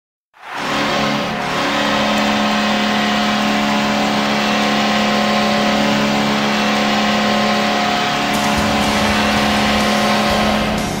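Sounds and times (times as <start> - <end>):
goal horn blast: 8.3 - 11.0
steady wash of noise: 8.3 - 11.0.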